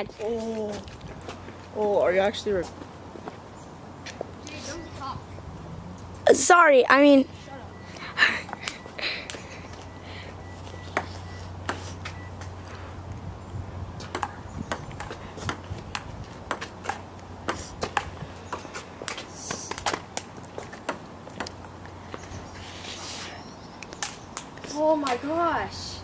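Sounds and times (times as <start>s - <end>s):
ping-pong ball clicking: 14.1s - 19.2s, 20.9s - 21.7s.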